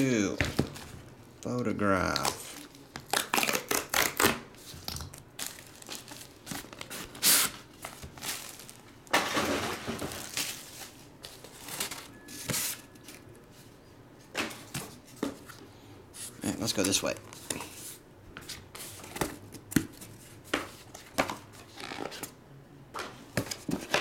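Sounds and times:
cardboard packaging rustling: 4.6s - 13.3s.

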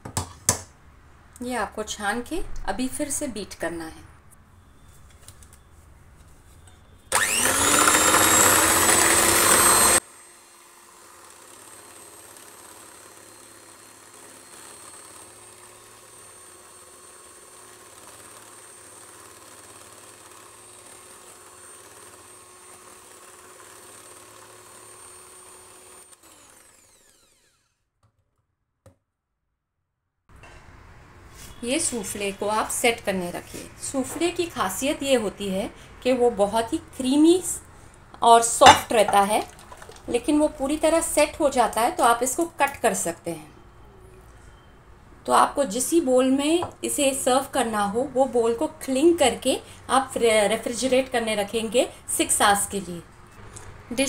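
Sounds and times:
electric hand mixer running: 7.1s - 27.7s.

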